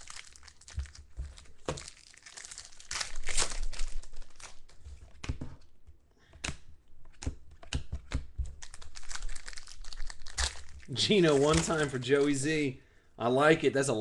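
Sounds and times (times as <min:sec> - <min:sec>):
foil wrapper crinkling: 0:00.0 - 0:04.7, 0:08.6 - 0:12.5.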